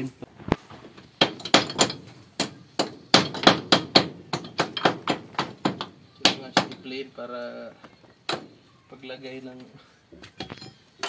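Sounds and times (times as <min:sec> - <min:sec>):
hammer striking concrete wall: 0:01.2 - 0:06.9.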